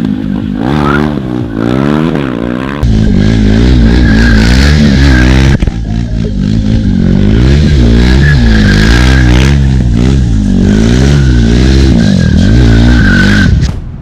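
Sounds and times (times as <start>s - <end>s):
motorcycle engine revving: 0.0s - 13.7s
tyre squealing: 6.4s - 10.1s, 10.7s - 13.7s.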